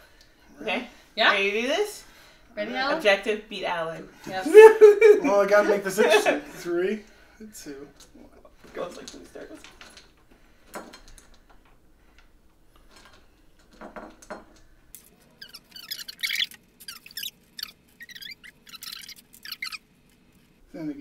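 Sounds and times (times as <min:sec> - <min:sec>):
short high-pitched squeaks: 0:15.3 - 0:19.9.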